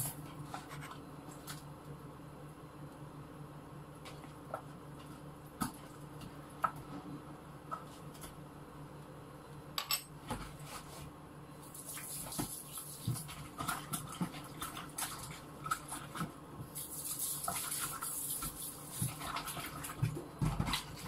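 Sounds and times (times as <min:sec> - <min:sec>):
steady low hum: 0:00.0 - 0:11.8.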